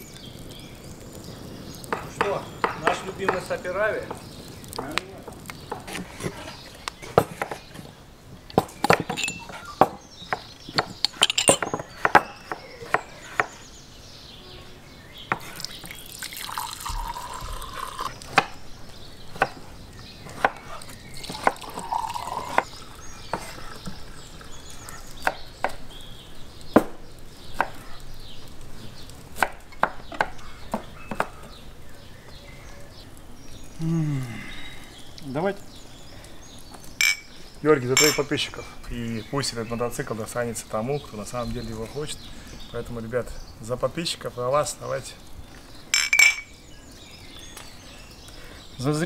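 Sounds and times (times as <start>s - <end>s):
wine pouring into glasses: 15.8s - 18.2s, 21.2s - 23.1s.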